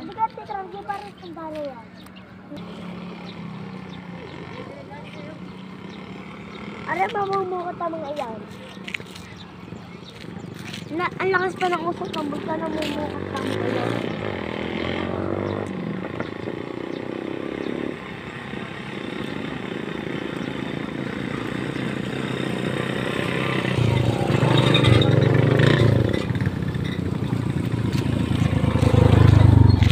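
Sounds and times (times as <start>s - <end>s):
engine running: 11.4s - 29.9s.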